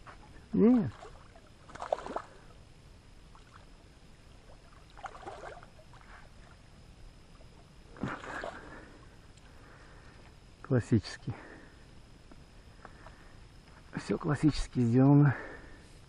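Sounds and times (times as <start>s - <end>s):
landing net splashing through water: 0.8s - 2.4s, 4.7s - 6.0s
fish thrashing at water surface: 0.8s - 2.5s.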